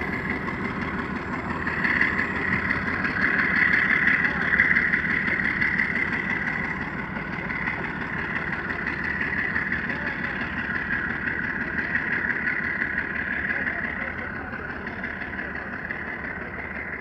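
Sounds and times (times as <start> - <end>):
freight train rumbling on rails: 0.0 - 17.0.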